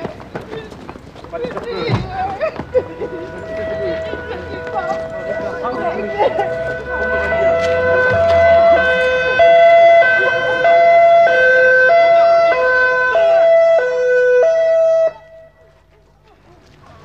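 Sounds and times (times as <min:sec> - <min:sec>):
two-tone siren: 0:02.8 - 0:15.8.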